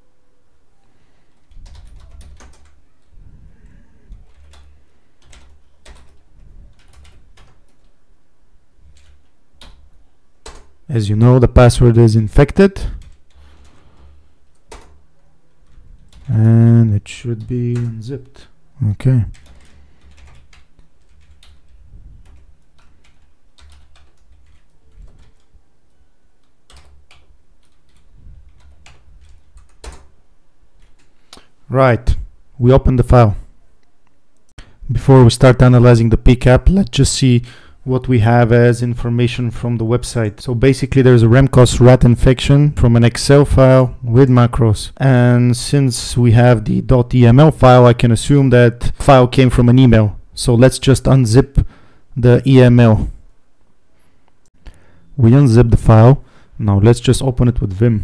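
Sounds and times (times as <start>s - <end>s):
keyboard typing clicks: 1.4s - 3.1s, 8.9s - 10.8s, 26.4s - 30.1s
typing on computer keyboard: 1.4s - 3.1s, 4.1s - 8.0s, 8.9s - 10.8s, 14.5s - 16.3s, 19.3s - 25.6s, 26.4s - 30.1s.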